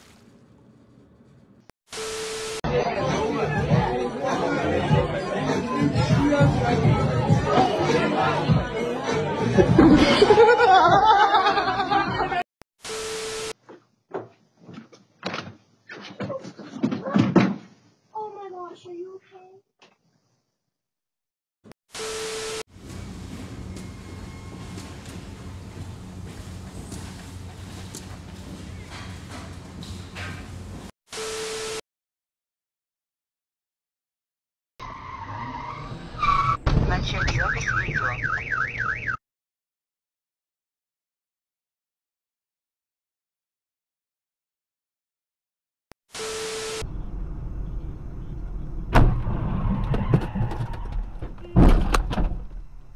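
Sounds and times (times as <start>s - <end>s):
footsteps on wooden porch: 13.6s - 17.8s, 24.5s - 30.9s
car alarm: 37.0s - 39.2s
low rumbling noise: 46.9s - 49.9s.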